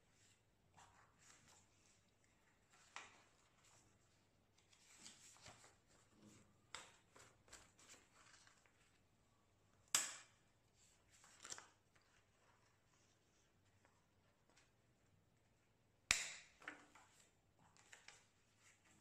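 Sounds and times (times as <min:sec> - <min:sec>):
paper rustling and sliding: 0:04.6 - 0:06.5.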